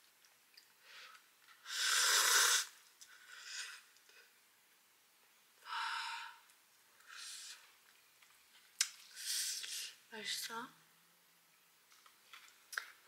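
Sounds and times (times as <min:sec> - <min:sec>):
person slurping noodles: 0:01.6 - 0:03.9.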